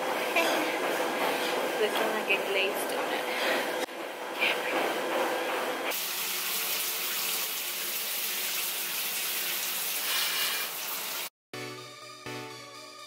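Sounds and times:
shower water spraying: 0:05.9 - 0:11.3
music: 0:11.5 - 0:13.0.

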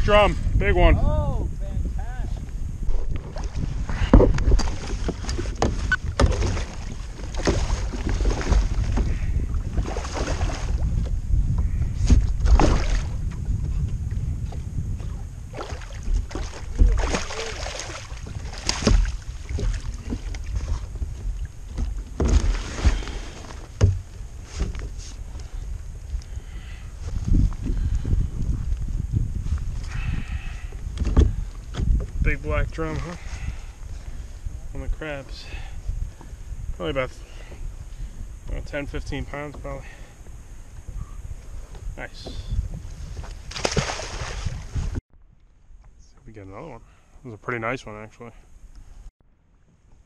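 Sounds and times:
wind rumbling on microphone: 0:00.0 - 0:47.2
water splashes: 0:03.3 - 0:11.0, 0:12.4 - 0:13.2, 0:15.5 - 0:24.4, 0:43.4 - 0:45.0
knocks against kayak hull: 0:04.0 - 0:06.7, 0:21.8 - 0:24.8.

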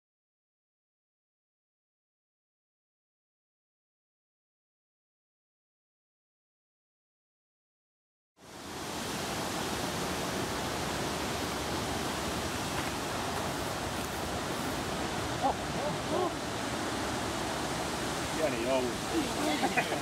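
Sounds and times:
steady outdoor rushing noise: 0:08.4 - 0:20.0.

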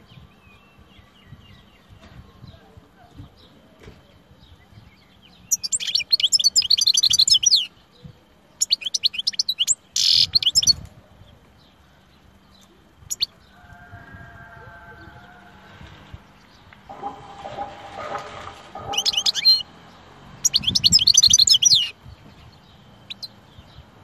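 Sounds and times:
goldfinch twittering song: 0:04.1 - 0:10.8, 0:12.3 - 0:13.5, 0:16.2 - 0:23.9.

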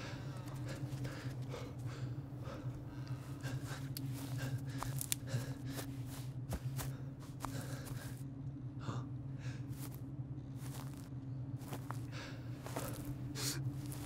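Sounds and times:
low steady drone: 0:00.0 - 0:14.0
footsteps on forest floor: 0:04.1 - 0:08.2, 0:09.8 - 0:10.0, 0:10.6 - 0:14.0.

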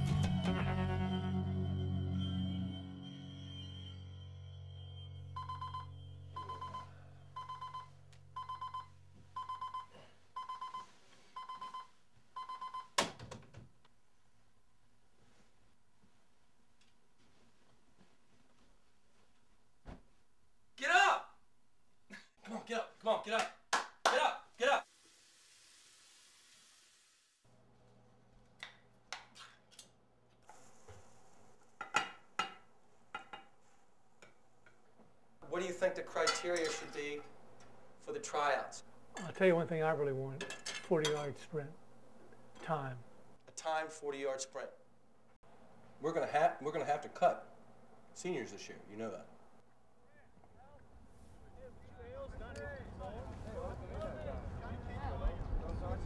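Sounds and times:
alarm clock beeping: 0:02.8 - 0:13.0.

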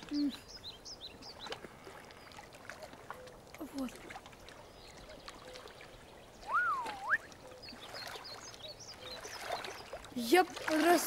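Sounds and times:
water lapping and trickling: 0:00.0 - 0:11.0
fluty bird whistle: 0:06.4 - 0:07.4.

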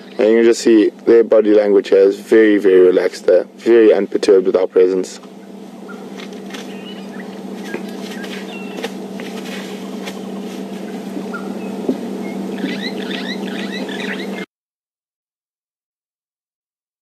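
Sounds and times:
steady low hum: 0:00.0 - 0:14.5
rapid high chirps: 0:05.8 - 0:08.9, 0:11.3 - 0:14.5
elephant feeding snaps and rustles: 0:06.0 - 0:06.8, 0:07.5 - 0:11.2.

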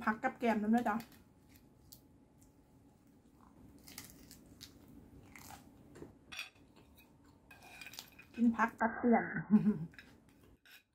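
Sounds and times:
crunchy chewing of lettuce: 0:03.3 - 0:05.8.

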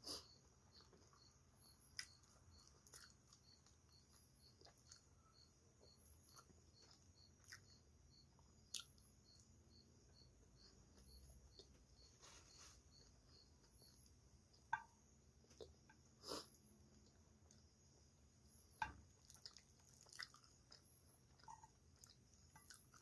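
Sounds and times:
faint high chirp: 0:00.0 - 0:23.0
person chewing: 0:00.1 - 0:07.8, 0:08.4 - 0:09.4, 0:18.8 - 0:23.0.

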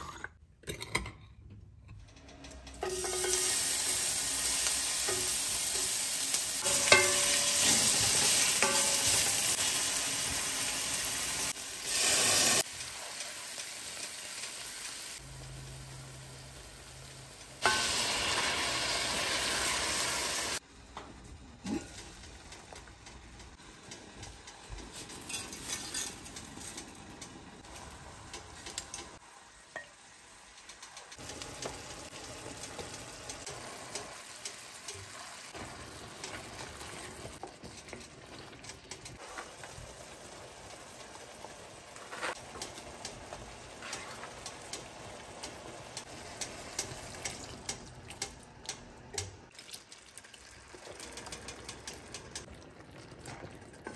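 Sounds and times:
sauce sizzling in a pan: 0:02.8 - 0:20.6, 0:31.2 - 0:37.4, 0:39.2 - 0:47.7.

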